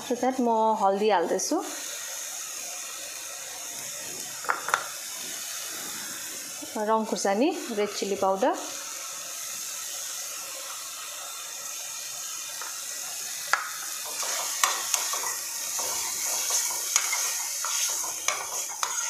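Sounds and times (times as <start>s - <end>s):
food sizzling in oil: 0.0s - 19.0s
metal spoon scraping pan: 14.0s - 19.0s.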